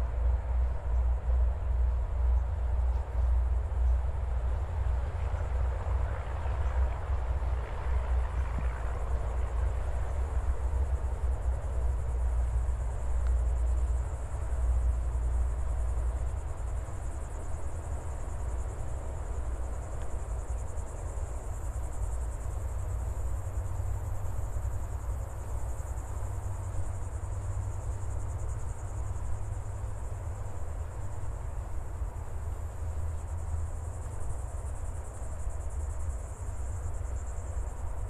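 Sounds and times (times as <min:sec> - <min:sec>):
insect chorus trilling: 0:07.9 - 0:38.0.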